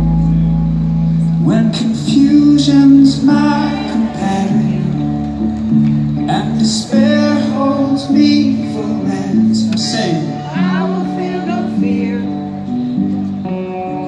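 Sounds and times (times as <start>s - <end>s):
guitar: 0.0s - 14.0s
keyboard chords: 0.0s - 14.0s
person singing: 1.4s - 5.4s, 6.2s - 12.8s.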